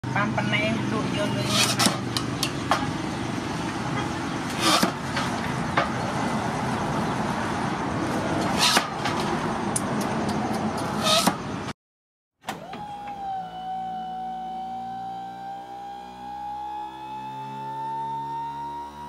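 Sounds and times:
blade chopping sugarcane on wood: 1.5 - 2.8, 4.6 - 5.9, 8.4 - 9.3
intro tune with held tone: 13.0 - 19.0.

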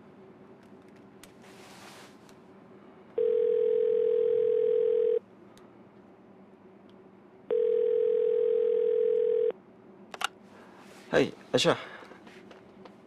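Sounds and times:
telephone ringback tone: 3.2 - 5.2, 7.5 - 9.5.

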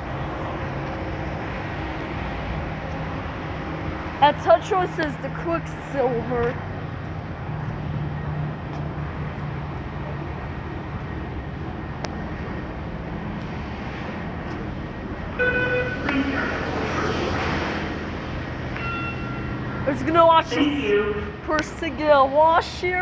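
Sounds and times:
tone: 15.4 - 16.7, 18.8 - 19.6.

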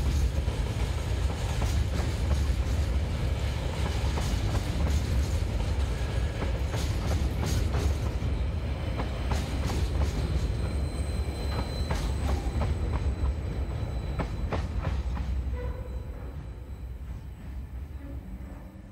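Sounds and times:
freight train rumbling past: 0.0 - 18.9.

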